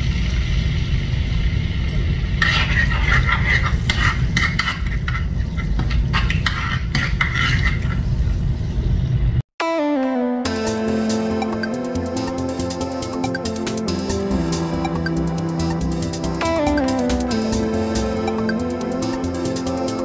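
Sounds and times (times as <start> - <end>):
steady low rumble: 0.0 - 6.3
spoon scraping frying pan: 2.4 - 8.2.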